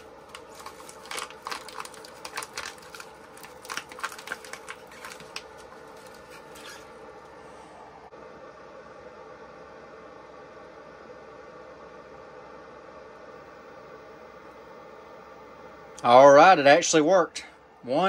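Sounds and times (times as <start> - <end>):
ice pack crinkling: 0.0 - 7.0
faint steady hum: 0.0 - 18.0.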